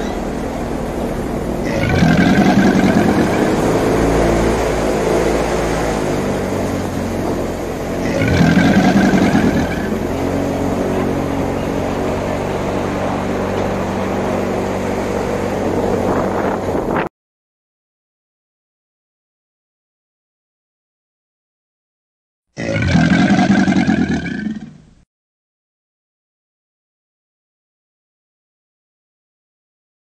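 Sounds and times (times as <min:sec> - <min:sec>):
airboat engine and propeller: 0:00.0 - 0:17.1.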